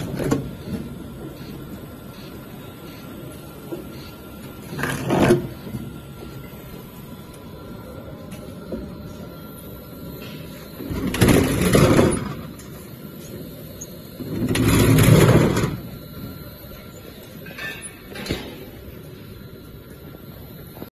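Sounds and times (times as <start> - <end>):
plastic cans rumbling on roller conveyor: 10.9 - 12.5, 14.2 - 15.9.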